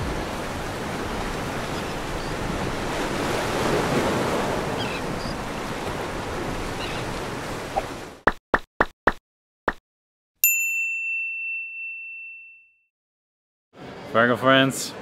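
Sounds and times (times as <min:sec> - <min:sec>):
ocean waves breaking on beach: 0:00.0 - 0:08.2.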